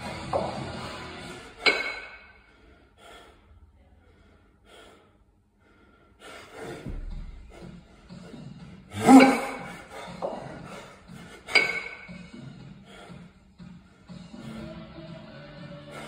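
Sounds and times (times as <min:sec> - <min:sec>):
person breathing hard: 0:02.4 - 0:11.6, 0:12.3 - 0:14.8.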